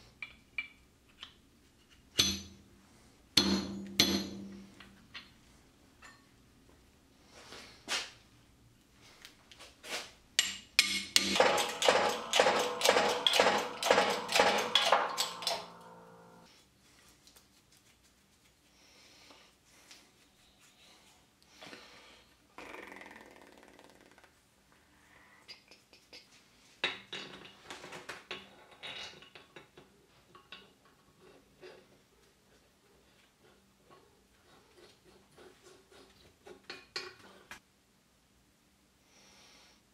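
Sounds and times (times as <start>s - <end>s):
hammer striking steel shaft: 10.4s - 16.5s
metallic ring: 10.8s - 16.5s.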